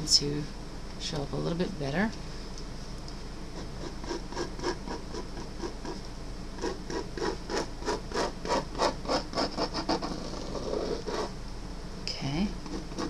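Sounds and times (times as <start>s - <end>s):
marker scratching on paper: 3.5s - 6.0s, 6.6s - 11.3s, 12.6s - 13.0s.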